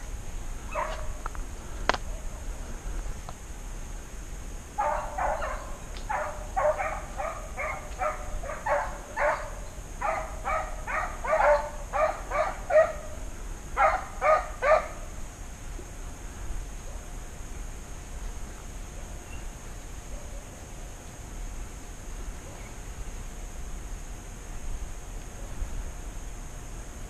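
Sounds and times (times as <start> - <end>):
hounds barking: 0.7 - 1.2, 4.8 - 13.2, 13.8 - 15.0.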